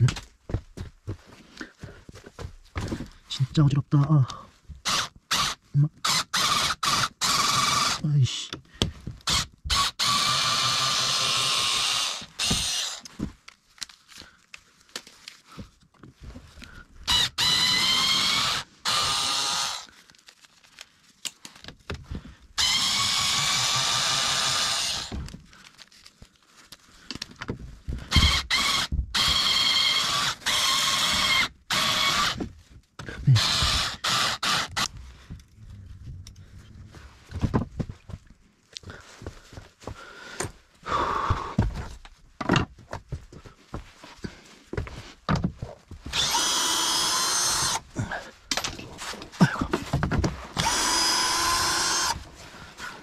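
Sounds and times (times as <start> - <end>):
power drill motor whine: 4.9 - 8.0, 9.3 - 13.0, 17.1 - 19.9, 22.6 - 25.2, 28.2 - 32.4, 33.3 - 35.0, 46.1 - 47.8, 50.6 - 52.2.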